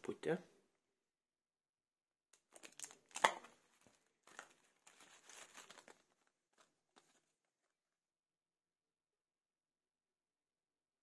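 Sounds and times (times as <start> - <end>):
plastic packaging crinkling: 2.4 - 7.7.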